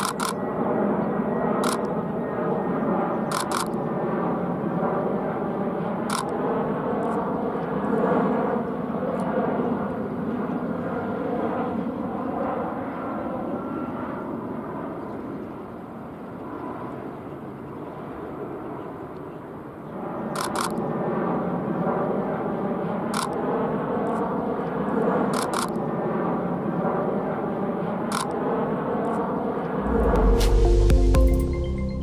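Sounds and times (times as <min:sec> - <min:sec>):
camera shutter clicks: 0:00.0 - 0:00.4, 0:01.6 - 0:01.9, 0:03.3 - 0:03.8, 0:06.1 - 0:06.4, 0:20.4 - 0:20.8, 0:23.2 - 0:23.4, 0:25.3 - 0:25.8, 0:28.1 - 0:28.4
jet airliner engine noise: 0:00.0 - 0:31.1.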